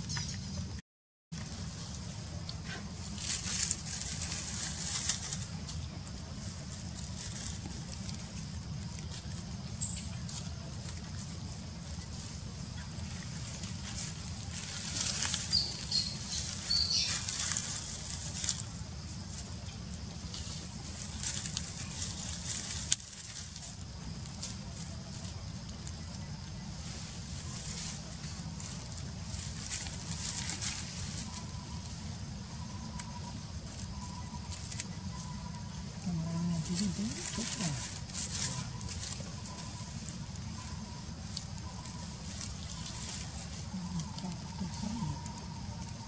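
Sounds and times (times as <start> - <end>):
dry leaves rustling: 1.3 - 46.0.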